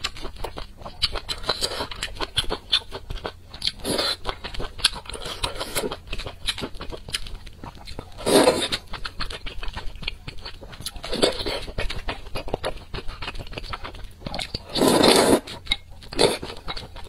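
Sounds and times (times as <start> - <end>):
wet chewing: 0.0 - 17.0
slurping noodles: 3.8 - 4.2, 8.2 - 8.8, 14.6 - 15.6.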